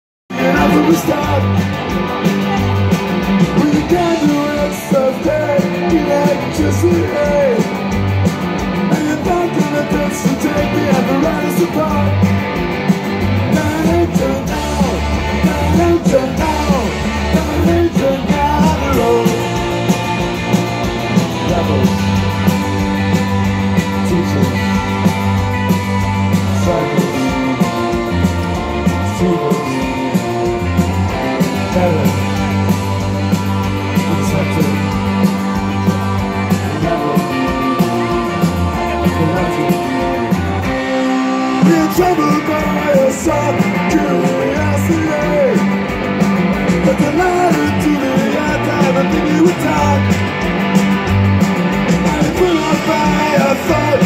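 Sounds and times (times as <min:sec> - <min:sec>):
person singing: 0:00.3 - 0:02.8, 0:03.4 - 0:07.8, 0:08.8 - 0:12.4, 0:13.3 - 0:20.4, 0:26.3 - 0:45.8, 0:46.8 - 0:50.2, 0:51.9 - 0:54.0
live rock band playing: 0:00.3 - 0:54.0.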